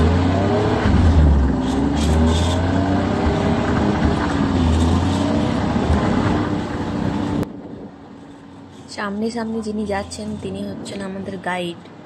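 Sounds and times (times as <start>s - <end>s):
snowmobile engine running: 0.0s - 7.4s.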